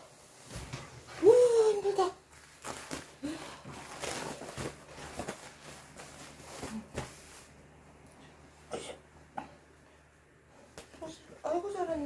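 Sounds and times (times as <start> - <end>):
absorbent pad rustling and crinkling: 0.0 - 7.7.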